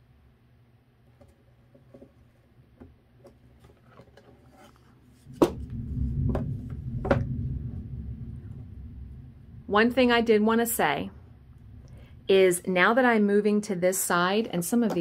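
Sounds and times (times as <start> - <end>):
low handling rumble: 5.2 - 13.6.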